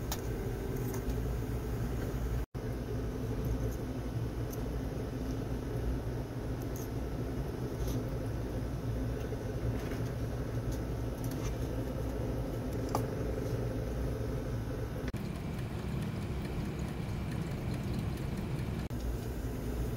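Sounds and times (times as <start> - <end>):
low mechanical hum: 0.0 - 19.9.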